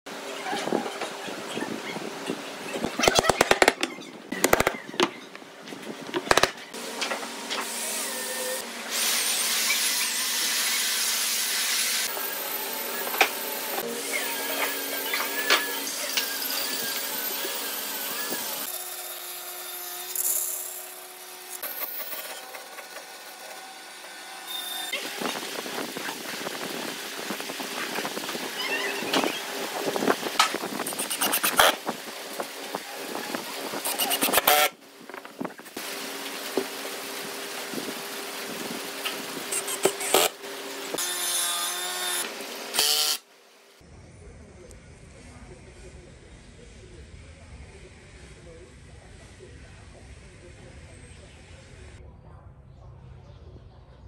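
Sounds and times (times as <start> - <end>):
sharp wooden knocks: 3.1 - 5.1, 6.2 - 6.6
power tool running: 4.4 - 4.7, 6.2 - 28.6, 29.4 - 32.0, 33.5 - 34.8, 38.9 - 43.3
band saw cutting wood: 6.2 - 25.6, 29.2 - 31.9, 33.4 - 34.8, 39.0 - 43.2.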